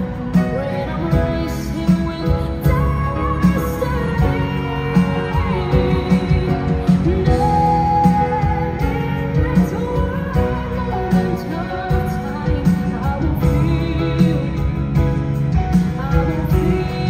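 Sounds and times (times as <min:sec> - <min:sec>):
band with guitar: 0:00.0 - 0:17.0
male voice singing: 0:15.7 - 0:17.0.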